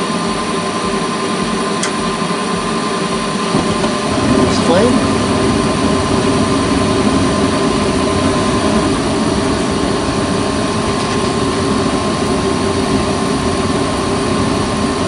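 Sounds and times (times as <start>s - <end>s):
furnace inducer motor running: 0.0s - 15.0s
gas burners rushing: 0.0s - 15.0s.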